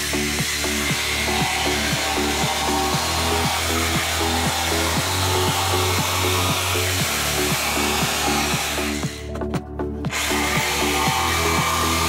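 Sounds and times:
jigsaw cutting plywood: 0.0s - 9.4s, 10.1s - 12.0s
background music with steady beat: 0.0s - 12.0s.

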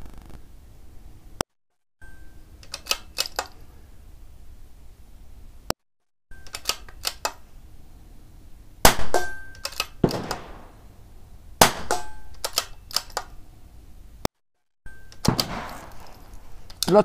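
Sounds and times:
rifle bolt metallic clicks: 2.6s - 3.6s, 6.4s - 7.5s, 9.1s - 10.7s, 11.8s - 13.4s, 15.1s - 16.9s
rifle shots: 8.8s - 11.0s, 11.6s - 13.2s, 15.2s - 16.6s.

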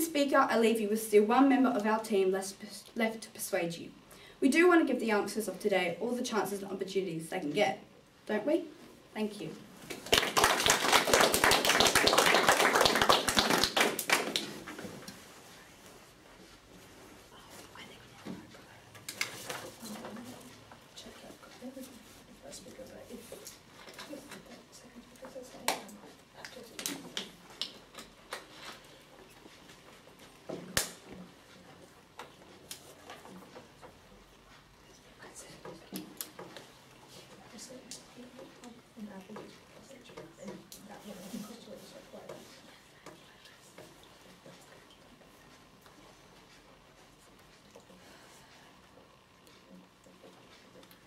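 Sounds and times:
audience applauding: 9.9s - 14.6s.

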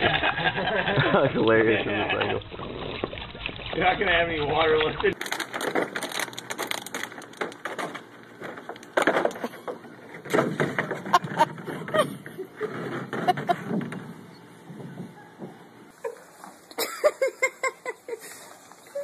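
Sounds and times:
plastic pool scraping on concrete: 1.6s - 14.2s.

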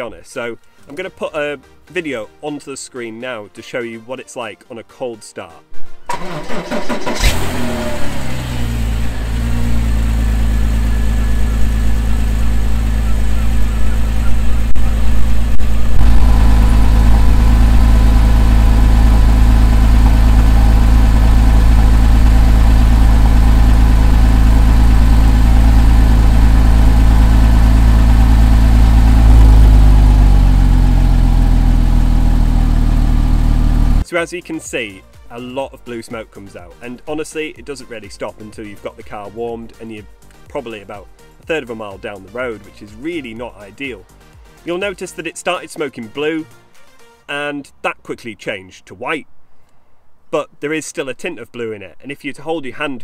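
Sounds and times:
car engine cold start idling: 6.1s - 34.0s.

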